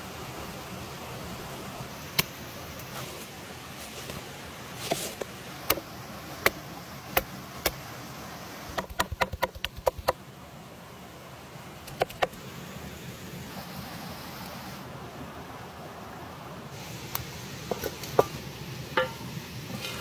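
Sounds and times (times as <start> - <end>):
cleaver chopping on wooden board: 8.7 - 10.2.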